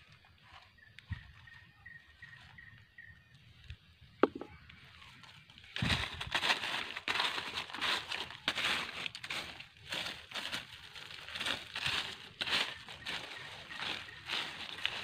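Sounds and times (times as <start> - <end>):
footsteps crunching dry leaves: 4.2 - 15.0.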